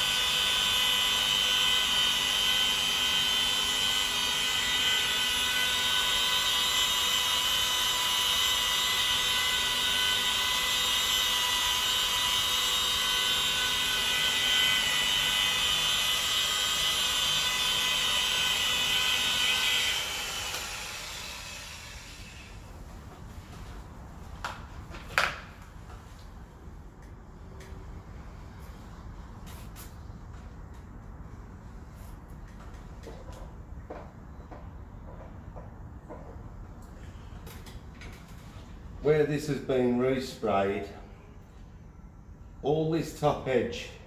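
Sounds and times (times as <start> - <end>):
rotary polisher whining: 0.0 - 22.6.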